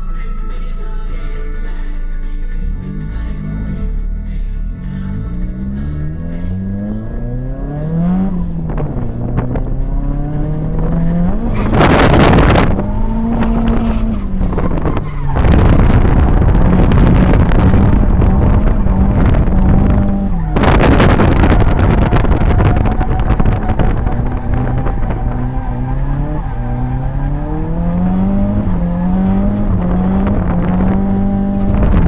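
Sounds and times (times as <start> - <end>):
car engine revving: 2.6 - 32.0
tire squeal: 10.8 - 30.4.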